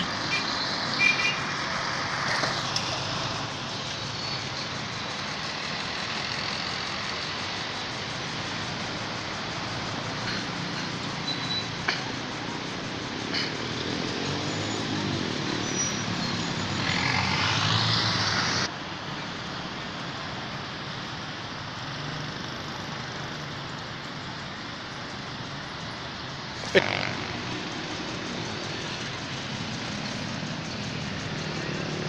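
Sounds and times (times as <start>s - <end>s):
outdoor background noise: 0.0s - 32.0s.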